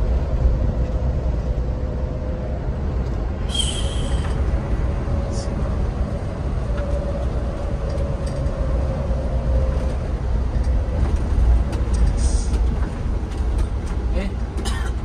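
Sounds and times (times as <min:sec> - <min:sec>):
diesel engine and road rumble: 0:00.0 - 0:15.0.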